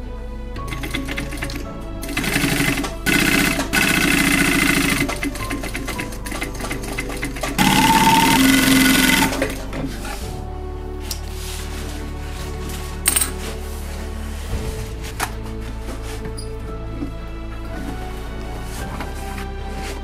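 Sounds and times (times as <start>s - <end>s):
sewing machine stitching: 0.7s - 9.8s.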